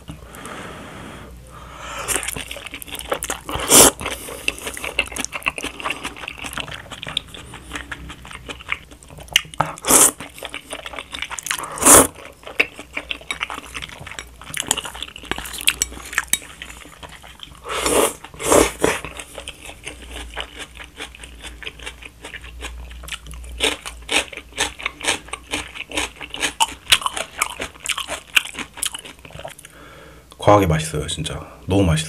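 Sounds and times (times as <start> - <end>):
noodle slurping: 2.0 - 8.8, 9.8 - 12.7, 17.2 - 19.2
chewing and mouth smacks: 2.1 - 17.6, 18.2 - 29.7.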